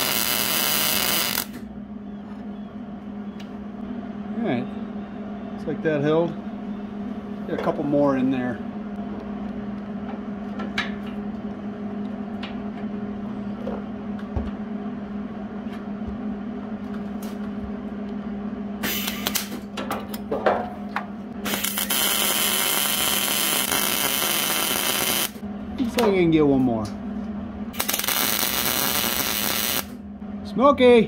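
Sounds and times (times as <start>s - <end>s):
welding arc sputtering: 0.0s - 1.6s, 18.8s - 19.6s, 21.4s - 25.4s, 27.7s - 30.0s
electrical hum: 0.0s - 31.0s.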